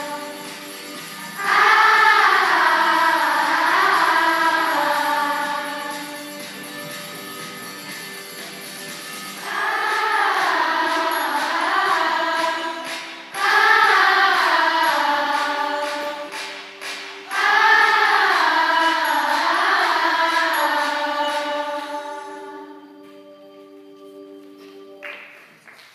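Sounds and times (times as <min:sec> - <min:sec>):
person singing: 0:00.0 - 0:06.5, 0:09.4 - 0:16.4
instrumental accompaniment: 0:00.0 - 0:25.5.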